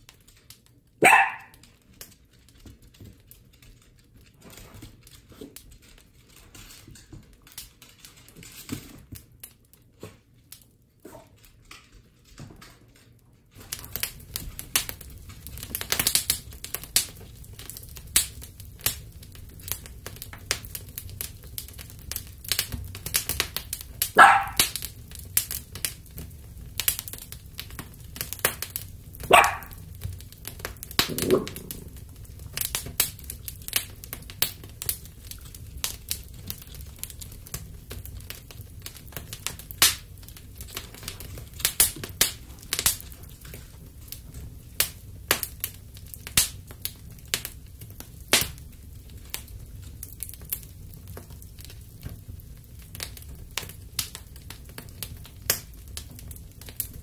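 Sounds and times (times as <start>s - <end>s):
dog barking: 1.0s - 1.6s, 24.2s - 24.7s, 29.3s - 29.8s
dog claws clicking on wooden floor: 1.4s - 9.3s, 29.3s - 31.9s.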